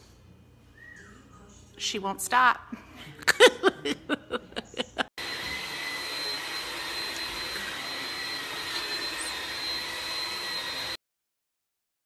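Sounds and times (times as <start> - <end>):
woman laughing: 2.7 - 5.1
vacuum cleaner running: 5.2 - 11.0.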